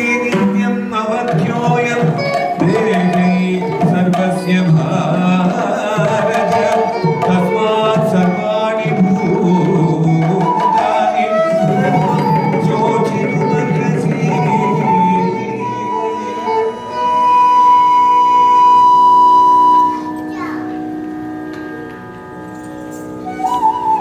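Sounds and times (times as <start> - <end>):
hand drum beating: 0.0 - 15.6
melodic line: 11.6 - 24.0.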